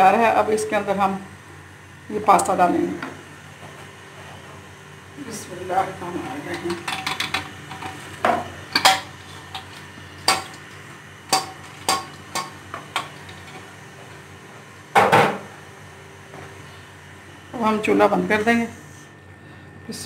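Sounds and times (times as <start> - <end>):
utensils knocking against a pan: 6.5 - 10.6, 11.3 - 13.6.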